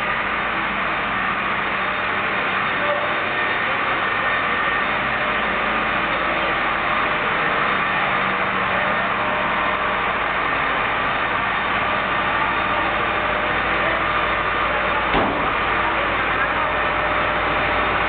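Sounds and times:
diesel engines idling: 0:00.0 - 0:18.0
brief knock: 0:15.1 - 0:15.5.

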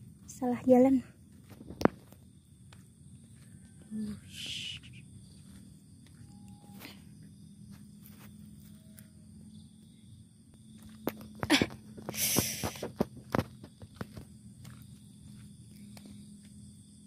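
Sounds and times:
footsteps on mud: 0:00.0 - 0:03.9, 0:05.2 - 0:06.8, 0:10.8 - 0:16.6
faint outdoor hum: 0:00.0 - 0:17.0.

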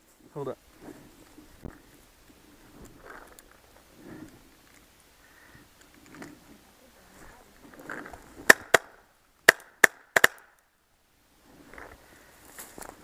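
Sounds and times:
paintball marker pops: 0:08.5 - 0:10.6
dry brush rustling: 0:11.4 - 0:13.0.

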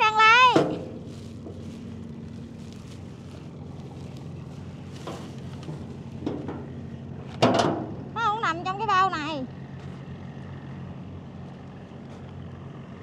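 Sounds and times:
boat engine humming: 0:00.0 - 0:13.0.

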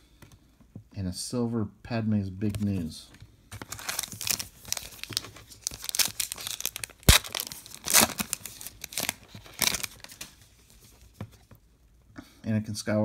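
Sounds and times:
foil wrapper tearing and crinkling: 0:03.6 - 0:10.4.

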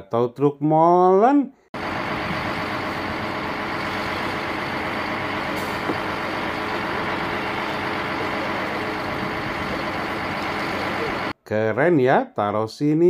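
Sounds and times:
diesel engine running: 0:01.8 - 0:11.4.

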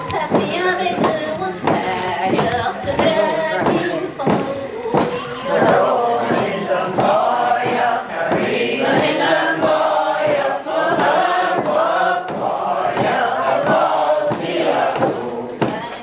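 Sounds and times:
group singing: 0:00.0 - 0:16.0.

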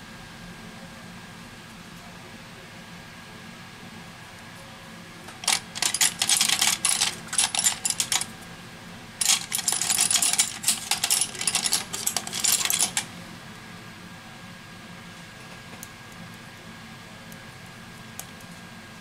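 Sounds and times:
small hard objects clicking: 0:05.3 - 0:08.3, 0:09.2 - 0:13.0.

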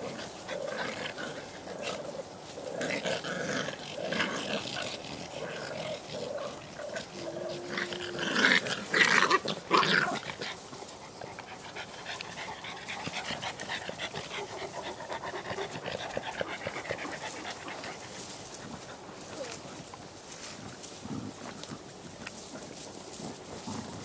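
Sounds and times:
dogs growling: 0:00.0 - 0:24.0
dog panting rapidly: 0:10.2 - 0:19.1.

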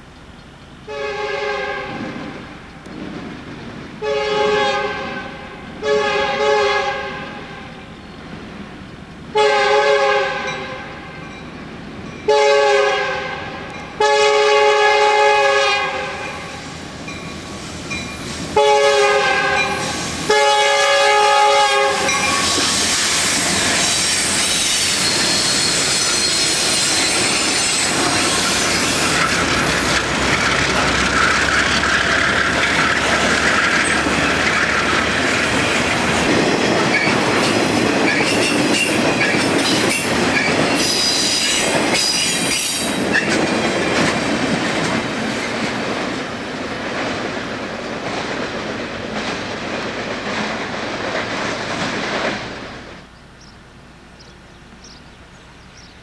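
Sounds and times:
locomotive air horn blasts: 0:00.8 - 0:02.3, 0:04.0 - 0:07.8, 0:09.3 - 0:11.3, 0:12.3 - 0:16.8, 0:18.5 - 0:29.0
train wheels clacking on rails: 0:15.9 - 0:20.6, 0:21.2 - 0:52.7
high wheel squeal: 0:16.1 - 0:18.6, 0:22.0 - 0:35.2, 0:36.9 - 0:43.4.

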